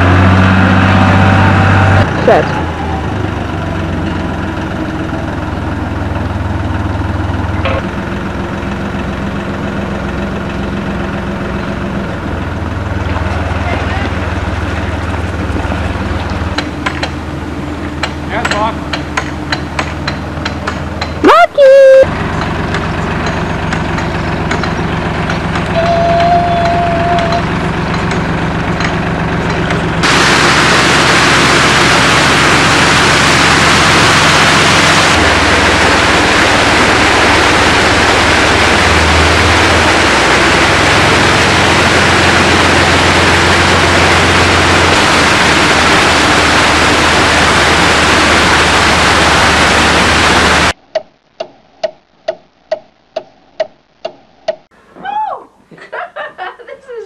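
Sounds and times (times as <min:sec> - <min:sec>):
diesel engine running at low revs: 0:00.0 - 0:50.8
loud rushing hiss: 0:30.0 - 0:50.8.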